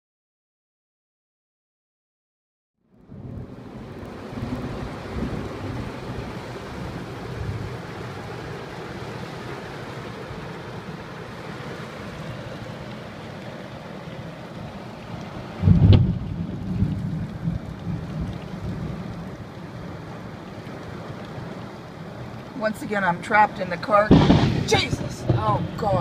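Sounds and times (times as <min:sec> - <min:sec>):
heavy rain drumming on car roof: 0:03.2 - 0:26.0
low rumbles: 0:15.6 - 0:19.9, 0:22.2 - 0:26.0.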